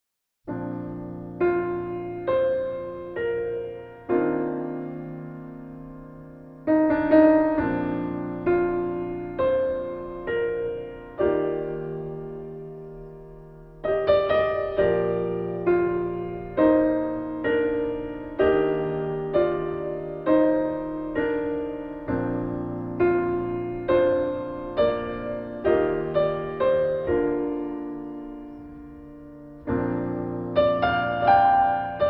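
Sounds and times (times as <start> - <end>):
gentle piano music: 0.5 - 32.0.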